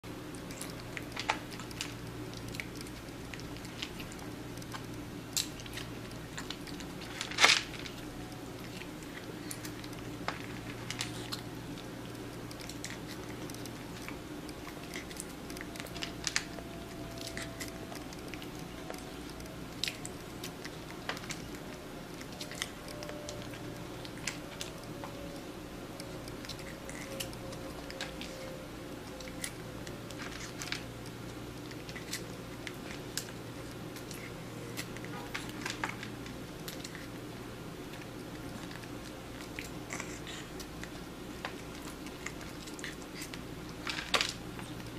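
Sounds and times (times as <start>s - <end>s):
steady low hum: 0.0s - 44.9s
small clicks and crunches: 0.3s - 37.2s, 37.9s - 44.9s.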